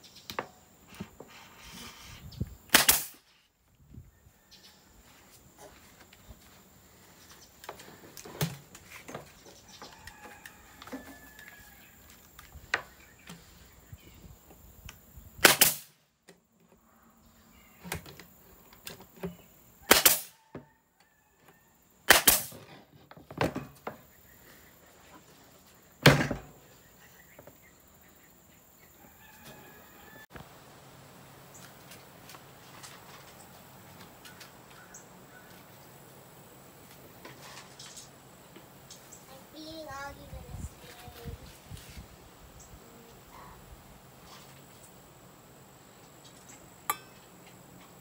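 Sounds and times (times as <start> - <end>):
nail gun firing: 2.7 - 3.2, 15.4 - 15.9, 19.9 - 20.4, 22.1 - 22.6.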